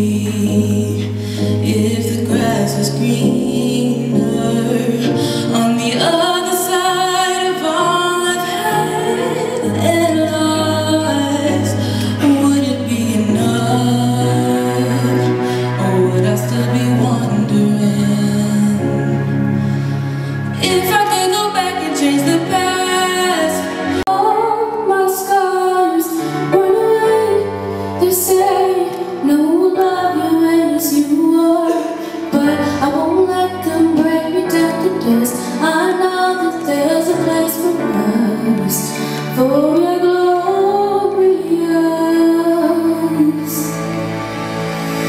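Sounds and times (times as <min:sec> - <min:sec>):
woman singing into a microphone: 0:00.0 - 0:19.4, 0:20.5 - 0:44.2
instrumental accompaniment: 0:00.0 - 0:45.0.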